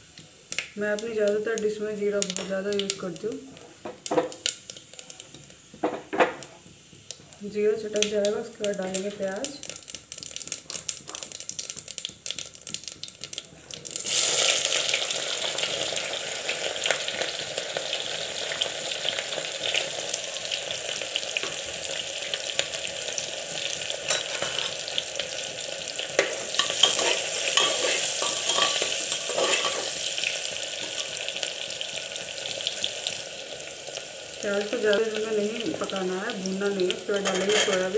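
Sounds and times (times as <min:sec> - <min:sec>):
onions sizzling in oil: 0:00.0 - 0:37.9
seeds crackling in hot oil: 0:00.0 - 0:37.9
ladle scraping pot: 0:26.5 - 0:29.9, 0:37.2 - 0:37.9.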